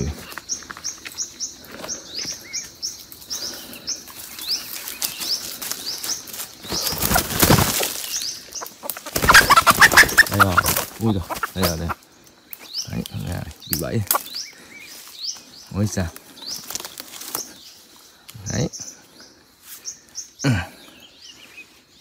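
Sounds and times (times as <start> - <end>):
high bird chirps: 0.0 - 12.0
bird wings flapping in dry leaves: 4.1 - 12.0, 16.5 - 17.6.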